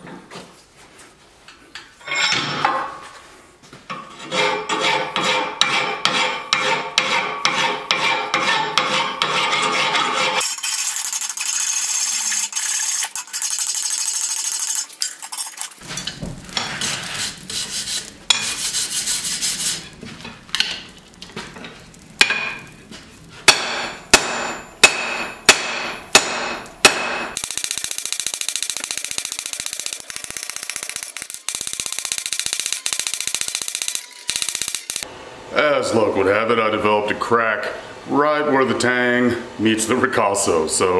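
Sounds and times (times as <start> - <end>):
hand rasp scraping hot steel: 4.1 - 13.2, 16.5 - 20.0.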